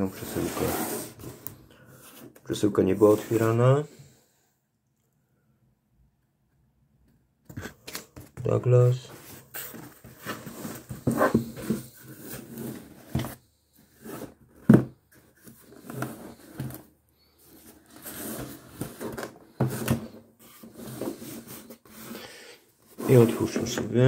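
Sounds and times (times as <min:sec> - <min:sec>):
cardboard scraping on table: 0:00.1 - 0:02.3, 0:09.2 - 0:16.9, 0:17.5 - 0:22.2, 0:22.9 - 0:23.9.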